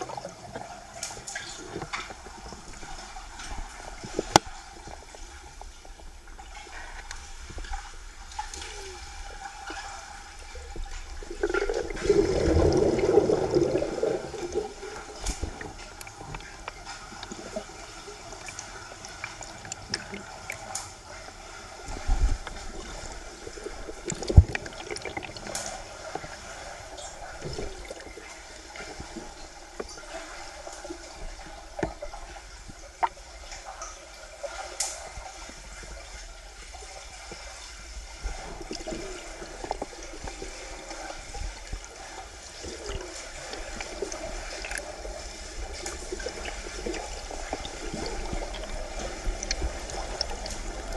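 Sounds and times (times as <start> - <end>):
underwater water gurgling: 0.0 - 50.9.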